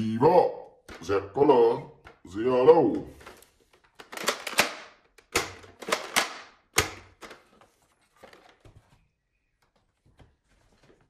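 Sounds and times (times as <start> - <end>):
plastic toy clicking and knocking: 3.8 - 7.5.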